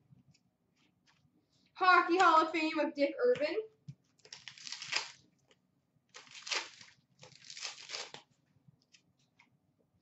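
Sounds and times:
foil wrapper tearing and crinkling: 4.2s - 5.3s, 6.1s - 8.3s.

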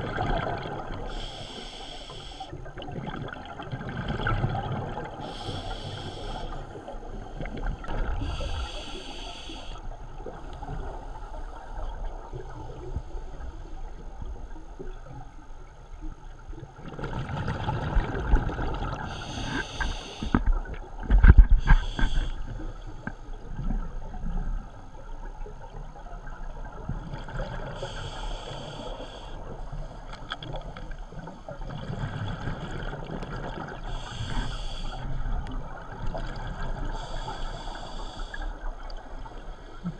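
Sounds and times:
gurgling exhaled bubbles: 0.0s - 1.1s, 2.7s - 5.3s, 16.8s - 19.2s
regulator hissing inhalations: 1.1s - 2.6s, 5.2s - 6.8s, 8.2s - 9.9s, 19.1s - 20.4s, 21.6s - 22.5s, 27.8s - 29.5s, 33.9s - 35.1s, 37.0s - 38.6s.

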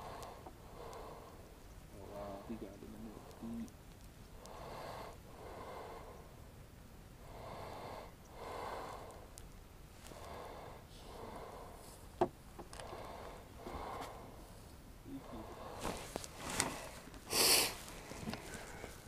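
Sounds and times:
slow breathing: 0.0s - 1.6s, 4.4s - 6.4s, 7.2s - 9.4s, 10.0s - 12.2s, 12.8s - 19.0s.

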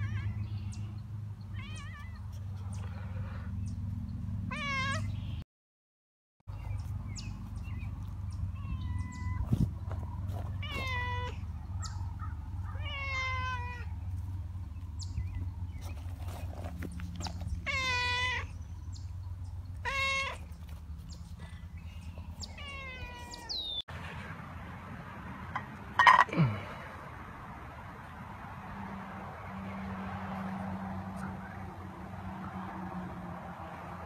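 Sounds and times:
cat meowing: 1.6s - 2.2s, 4.5s - 5.1s, 10.6s - 11.4s, 12.7s - 13.9s, 17.6s - 18.5s, 19.8s - 20.4s, 22.5s - 23.7s.

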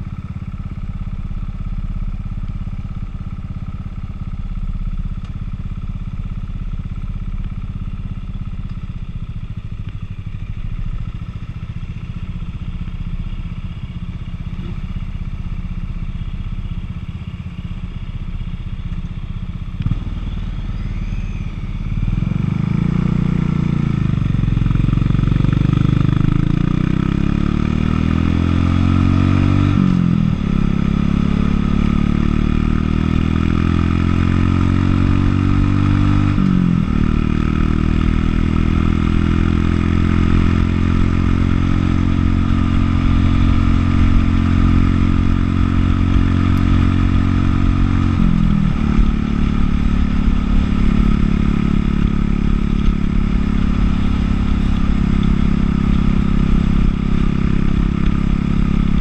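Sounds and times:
motorcycle engine: 0.0s - 59.0s.

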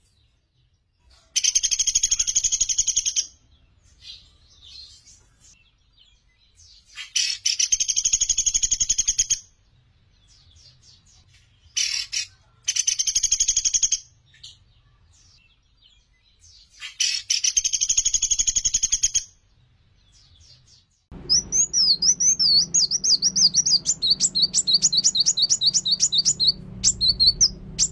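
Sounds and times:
bird whistling song: 6.6s - 9.5s, 11.8s - 14.5s, 16.5s - 19.3s, 21.2s - 27.9s
bird harsh chattering trills: 6.8s - 9.4s, 11.8s - 14.0s, 16.7s - 19.3s, 21.2s - 27.9s
low hum: 21.1s - 27.9s.

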